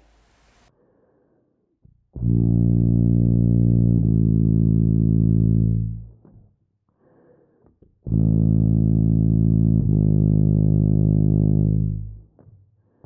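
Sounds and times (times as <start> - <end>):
tuba playing slurred long tones: 2.1 - 6.4, 8.0 - 12.4.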